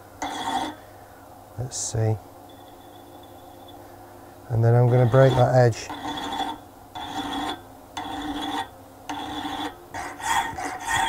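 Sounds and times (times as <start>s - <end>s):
file rasping on spinning metal: 0.2s - 0.8s, 4.6s - 11.0s.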